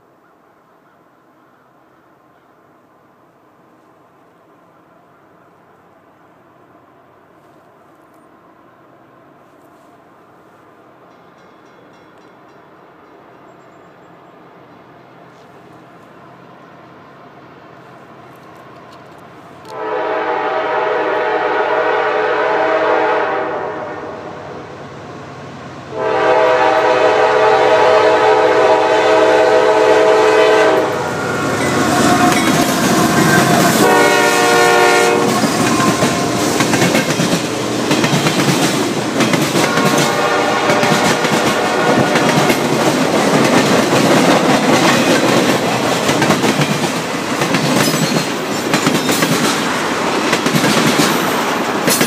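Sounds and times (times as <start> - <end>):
diesel locomotive engines passing: 1.8 - 52.0
train wheels clacking on rails: 11.0 - 13.6, 30.4 - 52.0
train air horn blasts: 19.7 - 24.5, 25.9 - 36.4, 39.6 - 42.8.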